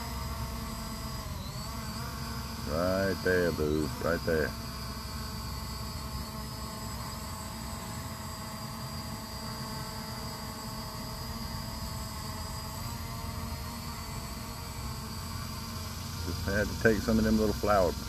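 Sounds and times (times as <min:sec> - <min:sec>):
drone propellers whining: 0:00.0 - 0:18.0
steady hiss: 0:14.2 - 0:18.0.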